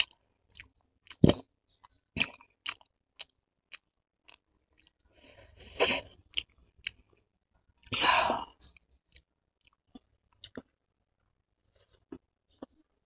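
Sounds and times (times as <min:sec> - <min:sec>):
person chewing noodles: 0:00.0 - 0:07.2, 0:07.8 - 0:10.7.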